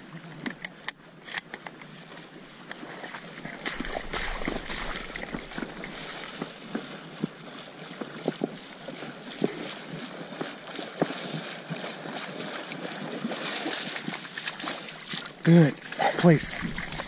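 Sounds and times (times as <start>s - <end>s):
dog splashing through water: 2.8s - 17.0s
dry reeds crackling: 3.4s - 6.4s.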